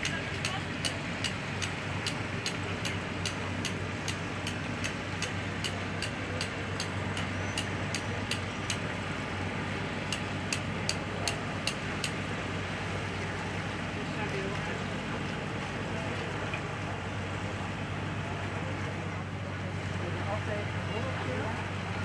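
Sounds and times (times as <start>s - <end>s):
sharp repeating tick: 0.0s - 8.8s, 10.1s - 12.2s
boat engine humming: 0.0s - 22.0s.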